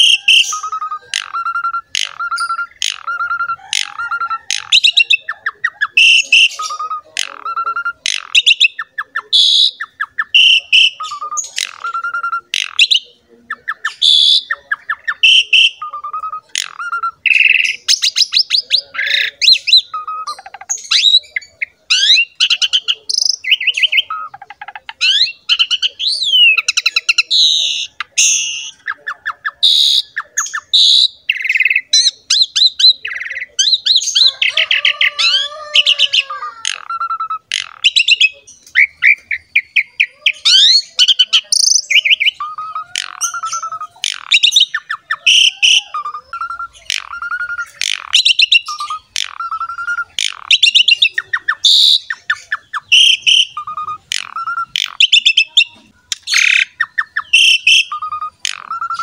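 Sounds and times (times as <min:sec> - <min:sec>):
starling singing: 0:00.0 - 0:59.0.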